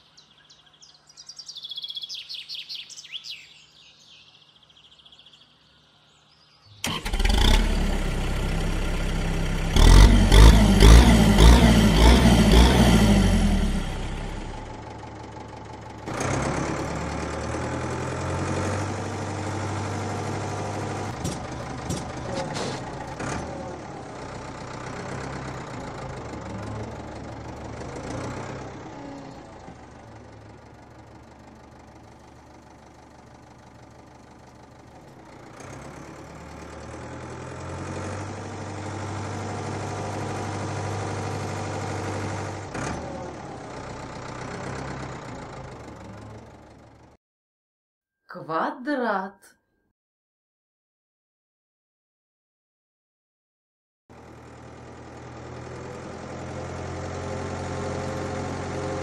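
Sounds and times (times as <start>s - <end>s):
cartoon tractor engine humming: 6.8s - 47.2s, 54.1s - 59.0s.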